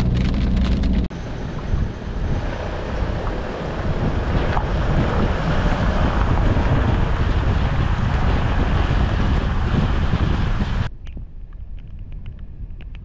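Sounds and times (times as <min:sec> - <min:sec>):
car road noise: 0:00.0 - 0:10.9
wind buffeting microphone: 0:00.0 - 0:13.0.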